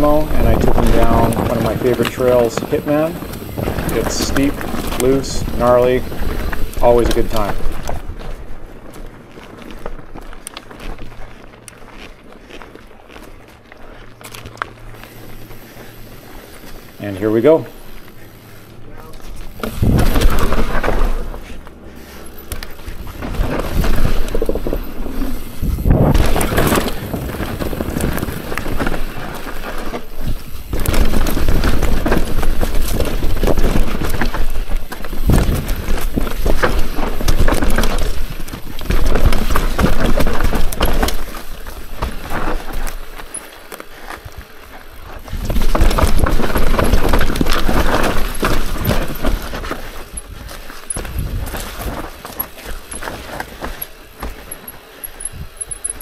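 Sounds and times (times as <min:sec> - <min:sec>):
bike clattering over bumps: 0:00.0 - 0:11.1, 0:14.3 - 0:56.0
tyres rolling over dirt and rock: 0:00.0 - 0:56.0.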